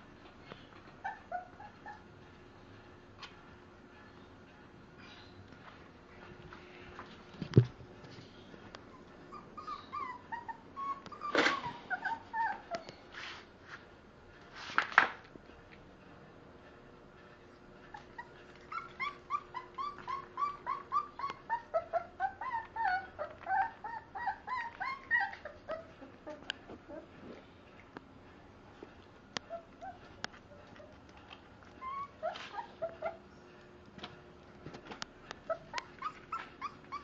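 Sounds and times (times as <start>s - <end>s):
puppy whimpering: 0.9s - 2.1s, 8.8s - 13.0s, 17.8s - 27.4s, 29.4s - 31.0s, 31.6s - 33.3s, 35.4s - 37.0s.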